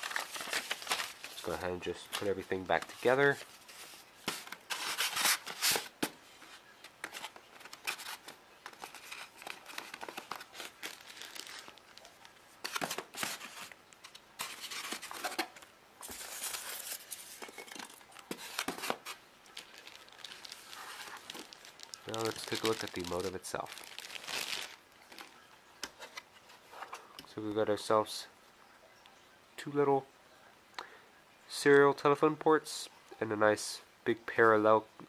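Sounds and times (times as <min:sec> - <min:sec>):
paper rustling and scraping: 0:00.0 - 0:25.3.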